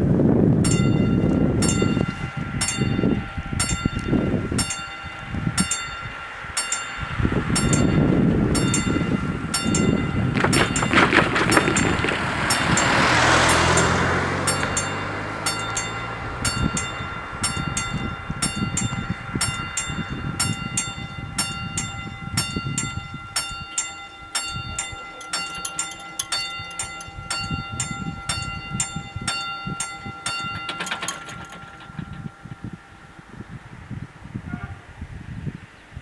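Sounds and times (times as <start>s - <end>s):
level crossing warning bells: 0.5s - 34.6s
passing car engine: 7.0s - 19.5s.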